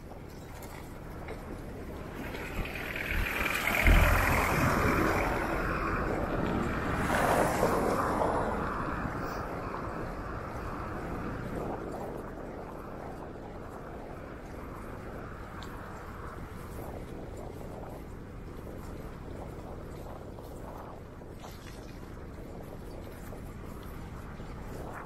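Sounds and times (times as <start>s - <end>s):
wind buffeting microphone: 0.0s - 25.0s
vehicle passing by: 1.4s - 11.3s.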